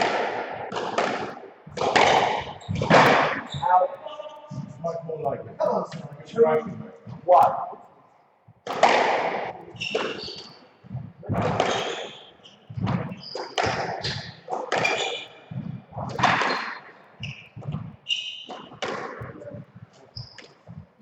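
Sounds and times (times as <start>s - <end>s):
squash ball thwacks: 0.0s - 3.5s, 8.6s - 10.6s, 11.3s - 16.9s
shoes squeaking on wooden floor: 1.7s - 7.3s, 9.4s - 21.0s.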